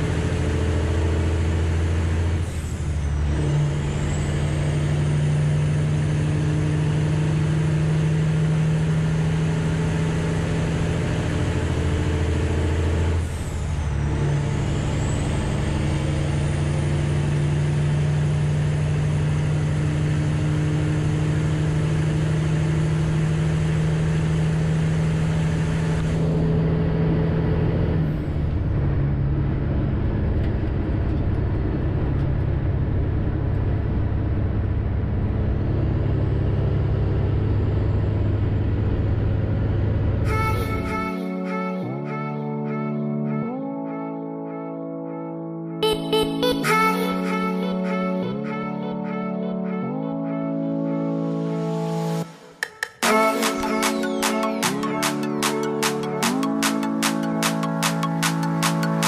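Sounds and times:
truck exhaust droning: 0.0 - 40.9.

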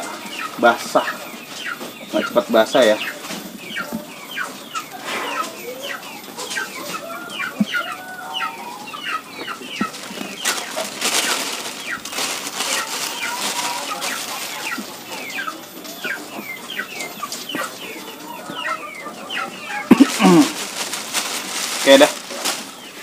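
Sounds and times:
chickens chirping: 0.0 - 23.0
plastic bag rustling: 4.8 - 17.9, 18.7 - 23.0.

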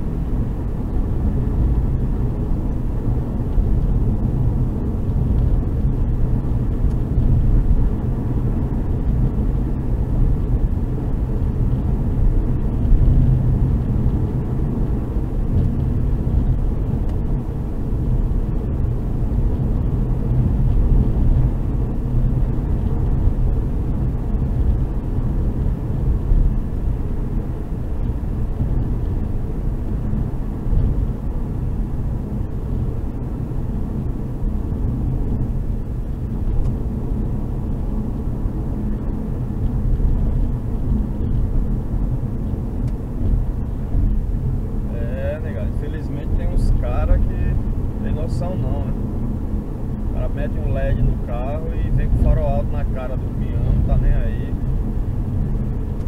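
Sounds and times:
car road and engine rumble: 0.0 - 56.0.

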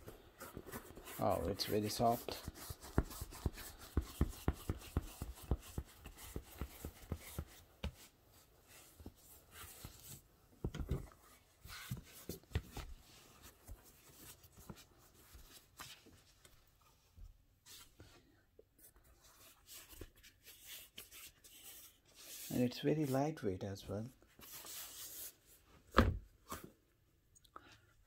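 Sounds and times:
hands rubbing foam mat: 0.0 - 10.3.

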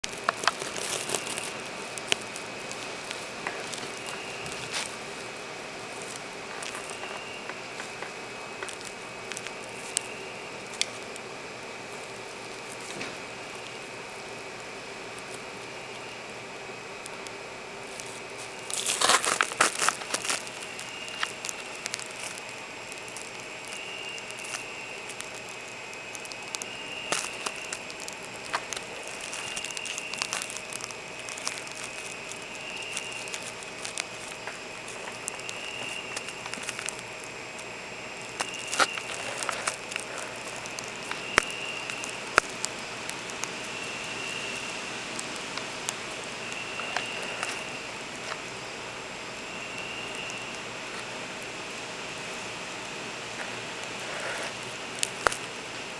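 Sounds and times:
cardboard crackling and rustling: 0.0 - 11.2, 17.8 - 37.4, 38.2 - 43.6.

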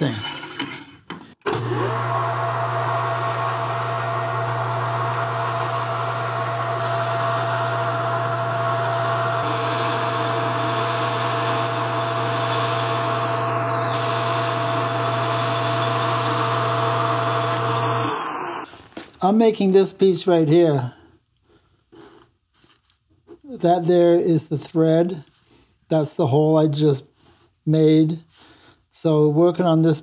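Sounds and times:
metal lathe running: 1.5 - 18.6.

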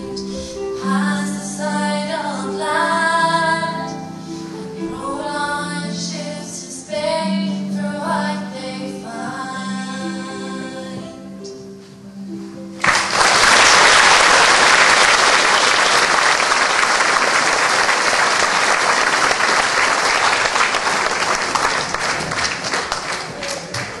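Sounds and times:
audience applauding: 12.8 - 24.0.

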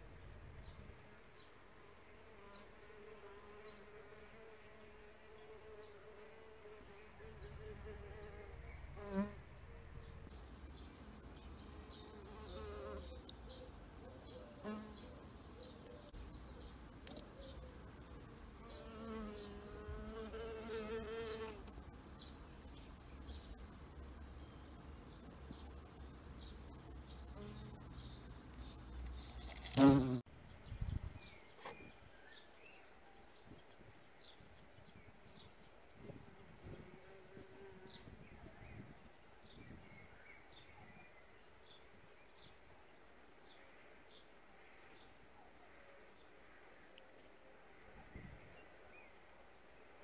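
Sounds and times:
bees buzzing: 10.3 - 30.2.

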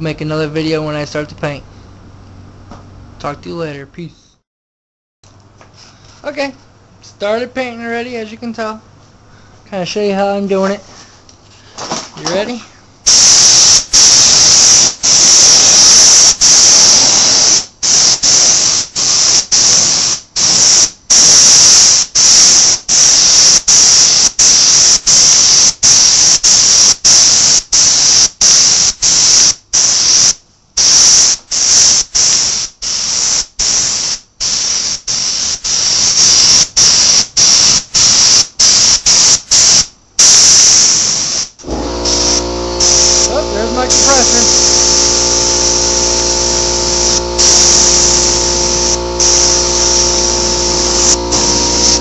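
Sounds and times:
spray gun hissing: 13.1 - 52.0.

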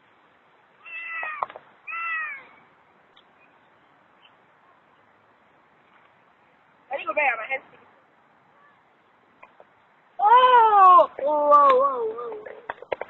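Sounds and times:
kitten meowing: 0.8 - 2.4.

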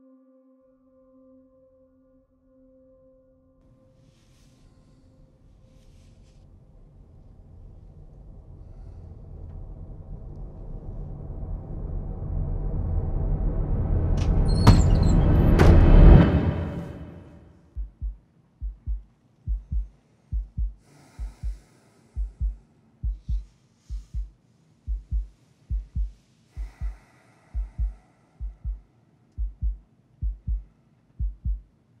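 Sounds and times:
heartbeat thumps: 17.7 - 21.6, 22.2 - 31.8.

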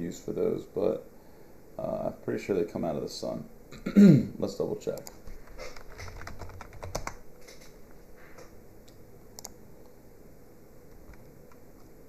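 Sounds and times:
typing on keyboard: 5.0 - 7.8.

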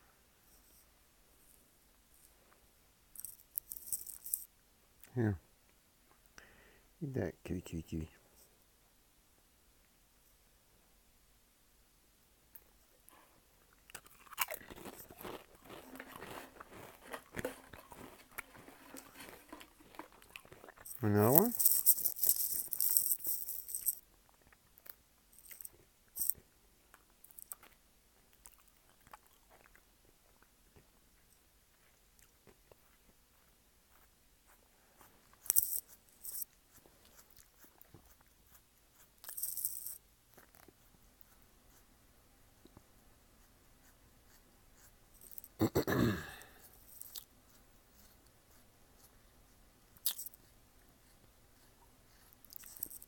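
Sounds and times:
cat crunching a crisp: 3.2 - 4.5, 13.7 - 41.8, 43.8 - 45.6, 46.3 - 49.2, 50.0 - 50.5, 51.1 - 53.0
crinkling rustle of chip can: 3.2 - 4.5, 14.0 - 24.0, 25.4 - 26.4, 35.0 - 38.1, 39.0 - 40.7, 45.2 - 45.6, 52.4 - 53.0.

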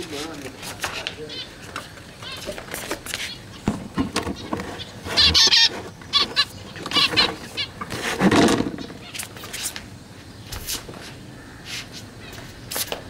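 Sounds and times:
scrabbling and knocks on plastic cage: 3.7 - 5.8, 6.9 - 9.0.

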